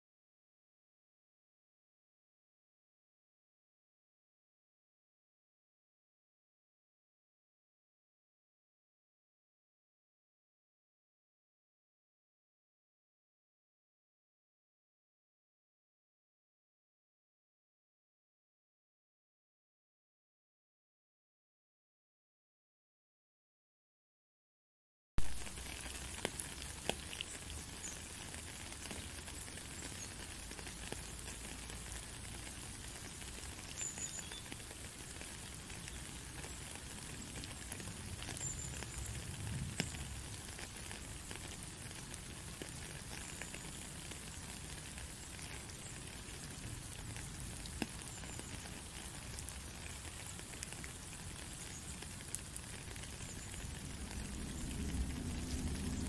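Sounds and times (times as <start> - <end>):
rain falling into puddle: 25.2 - 56.0.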